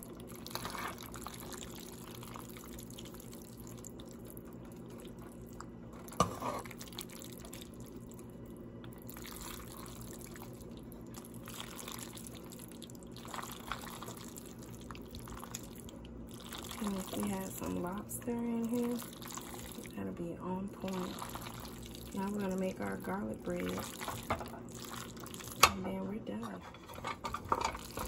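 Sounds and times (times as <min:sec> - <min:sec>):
steady low hum: 0:00.0 - 0:28.0
tongs stirring pasta in pan: 0:20.8 - 0:25.7.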